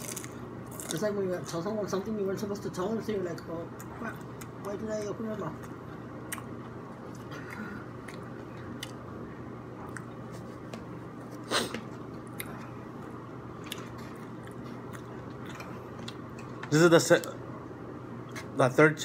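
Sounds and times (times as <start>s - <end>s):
person chewing food: 3.8s - 9.1s, 9.8s - 16.7s.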